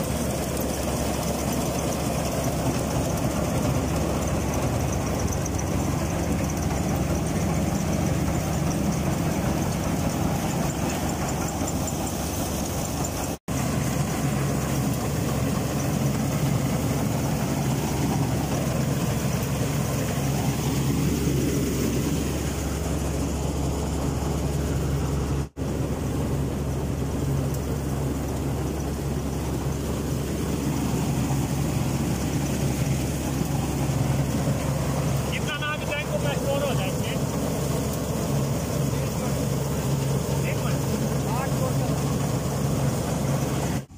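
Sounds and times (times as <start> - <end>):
combine harvester running: 0.0 - 43.9.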